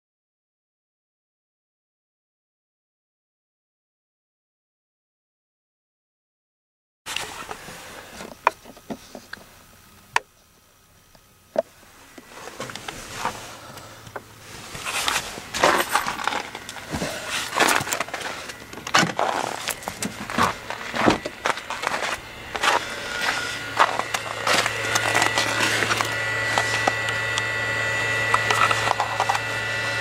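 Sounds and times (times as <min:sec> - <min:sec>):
crunching and scuffing in snow: 0:11.9 - 0:27.2.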